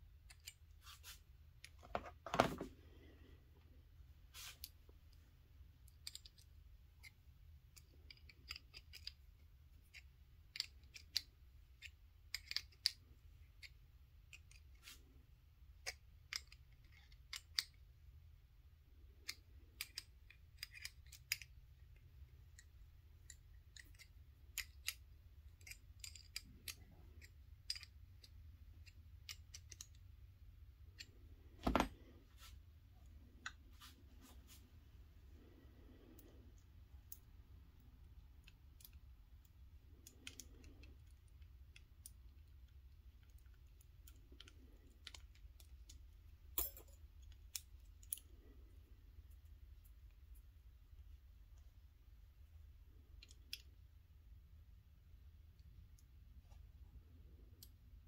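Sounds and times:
small metal fittings clicking: 5.8 - 13.0, 19.2 - 30.0.

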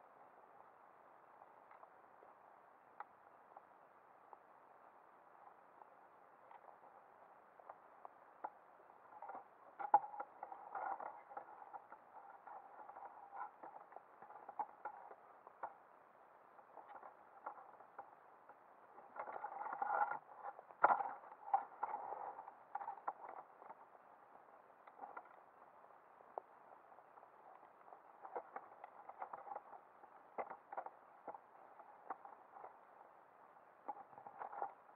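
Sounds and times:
muffled underwater clicks: 5.3 - 34.9
underwater scraping and knocking: 9.2 - 15.8.

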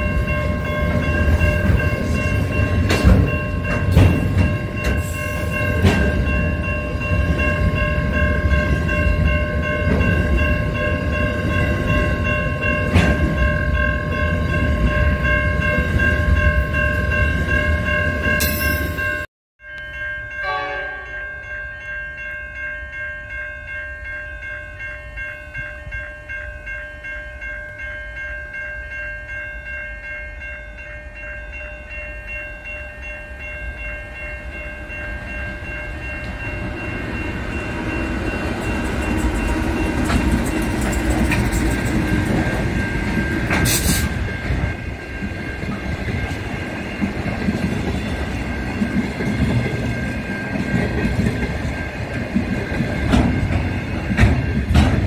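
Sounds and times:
freight train wagons rumbling: 0.0 - 19.3, 33.7 - 55.0
crossing warning bell ringing: 0.0 - 55.0.

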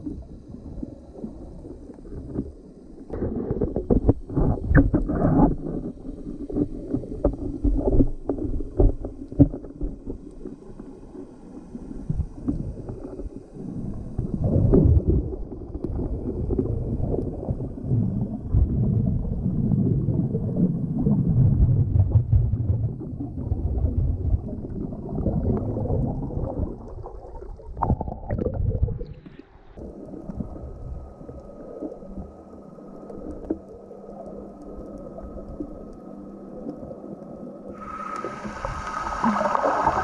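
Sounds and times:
muffled underwater water noise: 0.0 - 40.0
rushing water: 23.6 - 40.0.

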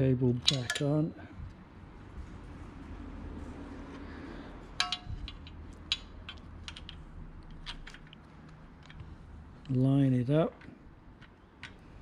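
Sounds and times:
small metallic clicks: 4.8 - 9.8.

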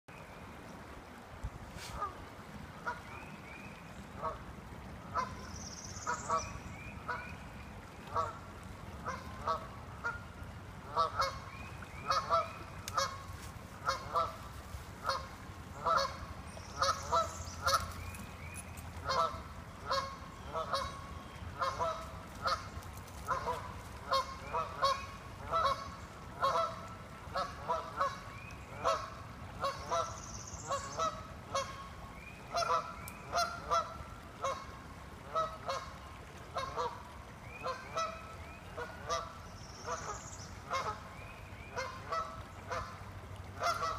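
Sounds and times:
geese honking: 10.9 - 11.4, 15.0 - 16.2, 23.3 - 25.8, 26.4 - 28.2, 32.5 - 34.6.

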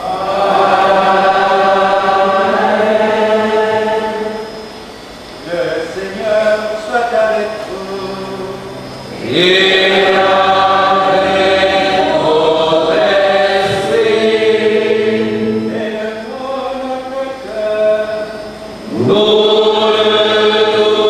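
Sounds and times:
voices chanting: 0.0 - 21.0.

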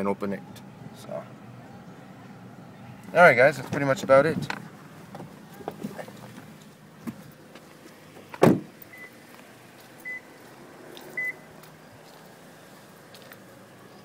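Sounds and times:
car door shutting with a thud: 8.2 - 8.8.

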